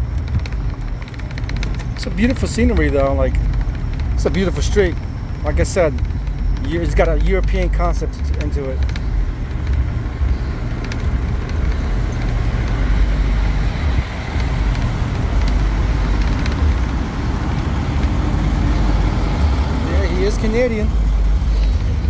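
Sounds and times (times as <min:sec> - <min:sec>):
low engine drone: 0:00.0 - 0:22.0
road noise: 0:00.0 - 0:22.0.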